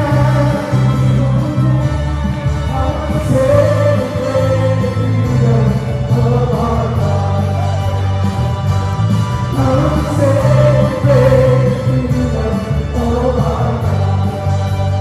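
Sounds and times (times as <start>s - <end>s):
bass guitar: 0.0s - 15.0s
keyboard: 0.0s - 15.0s
group singing praise song: 9.6s - 14.4s.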